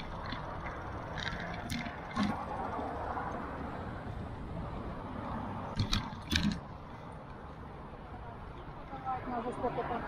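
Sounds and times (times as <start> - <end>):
bicycle tyre noise: 0.0 - 7.1.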